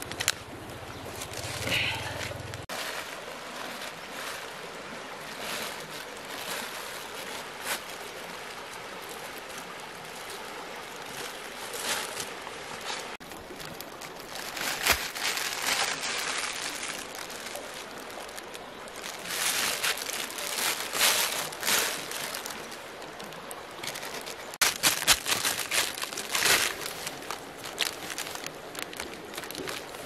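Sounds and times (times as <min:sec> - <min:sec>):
plastic bag crinkling: 0:13.5 - 0:23.1, 0:23.8 - 0:30.0
running water hiss: 0:13.8 - 0:30.0.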